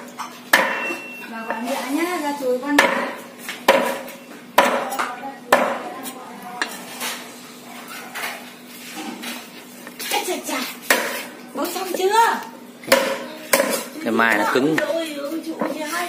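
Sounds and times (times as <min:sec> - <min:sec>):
cleaver chopping meat: 0:00.0 - 0:01.6, 0:02.7 - 0:05.9, 0:10.8 - 0:11.3, 0:12.8 - 0:14.9.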